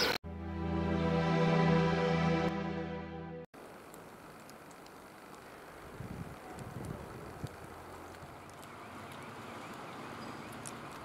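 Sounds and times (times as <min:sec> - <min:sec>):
outdoor background hiss: 0:03.6 - 0:11.0.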